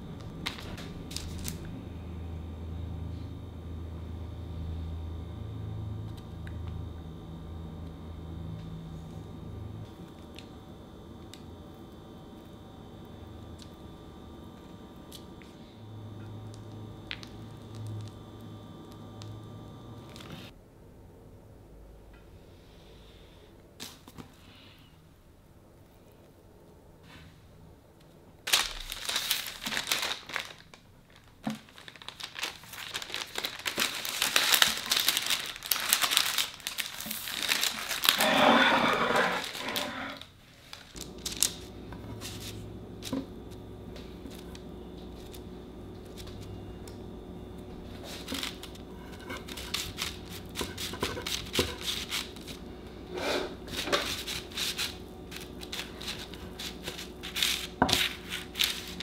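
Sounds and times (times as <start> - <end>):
parchment paper crinkling: 0.4 - 1.7, 28.4 - 43.2, 44.0 - 46.9, 47.8 - 52.8, 53.6 - 59.0
knife cutting sponge cake: 48.0 - 52.5.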